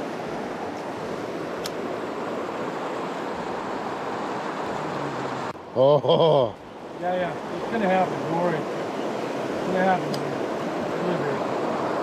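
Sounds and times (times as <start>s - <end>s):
river rushing over rocks: 0.0s - 5.6s, 6.7s - 12.0s
light click: 1.6s - 1.8s.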